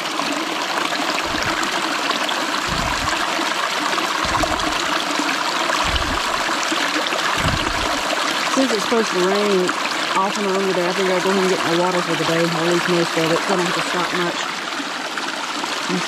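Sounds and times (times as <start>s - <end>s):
stream rushing over stones: 0.0s - 16.0s
water bottle filling: 1.0s - 12.0s
low bumps: 1.2s - 1.7s, 2.7s - 3.3s, 4.2s - 4.9s, 5.8s - 6.5s, 7.4s - 8.0s.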